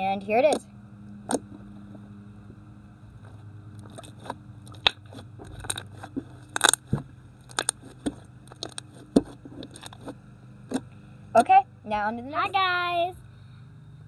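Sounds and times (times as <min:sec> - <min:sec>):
low steady hum: 0:00.0 - 0:14.0
sticky slime pops and crackles: 0:03.9 - 0:08.8.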